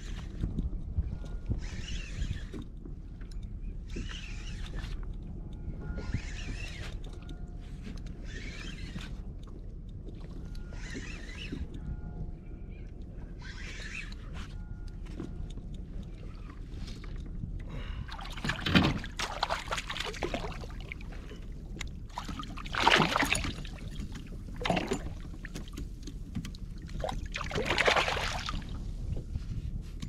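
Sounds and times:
low rumble of wind and sea: 0.0 - 30.0
water splashing beside kayak: 18.0 - 21.4, 22.1 - 26.0, 26.6 - 28.7.

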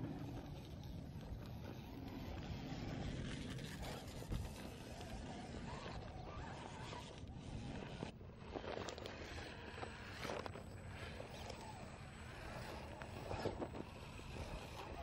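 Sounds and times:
tyres scraping on rock: 2.6 - 15.0.

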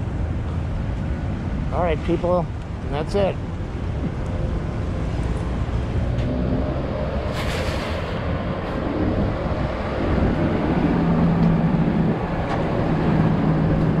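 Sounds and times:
vehicle rumble: 0.0 - 14.0
low engine hum: 3.4 - 14.0.

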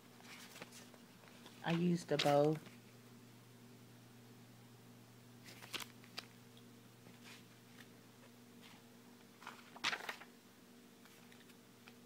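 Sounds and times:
steady low hum: 0.0 - 12.0
paper rustling: 0.2 - 2.8, 5.4 - 6.3, 9.4 - 10.3, 11.0 - 12.0.

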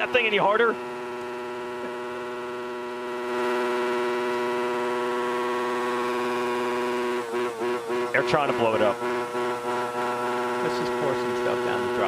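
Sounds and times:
motorbike engine revving high: 0.0 - 12.0.

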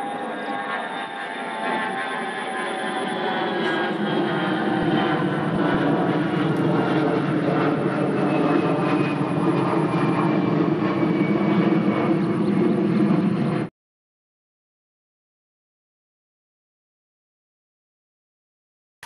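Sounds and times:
engine drone: 0.0 - 13.7.

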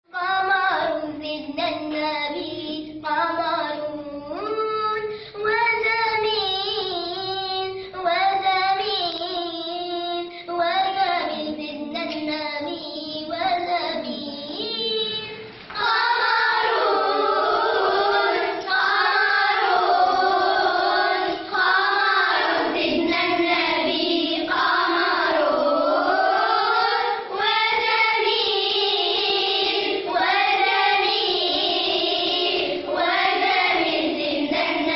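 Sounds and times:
children singing: 10.8 - 34.9.

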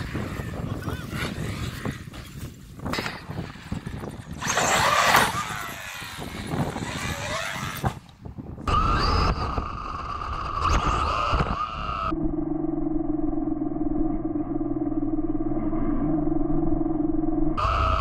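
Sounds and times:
toy truck motor whining: 3.9 - 12.1.

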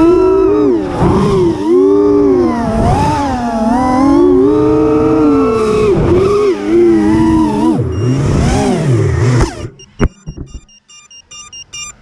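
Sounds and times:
drone motors whining: 0.0 - 12.0
short electronic beeps: 7.7 - 8.8, 9.4 - 12.0.

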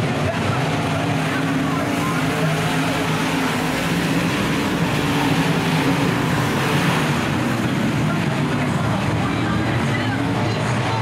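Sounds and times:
race car engines droning: 0.0 - 11.0.

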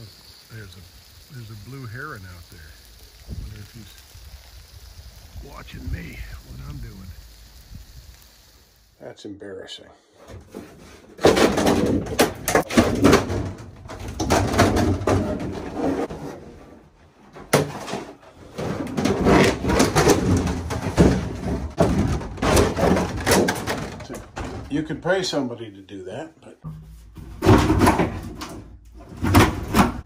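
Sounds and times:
handling noises knocking and scraping: 10.2 - 24.9, 26.6 - 30.0.

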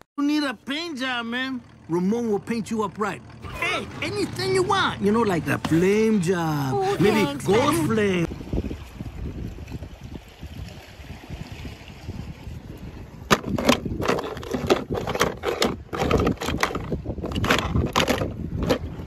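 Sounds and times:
water sloshing: 1.6 - 19.0
short water splashes: 6.9 - 14.2.

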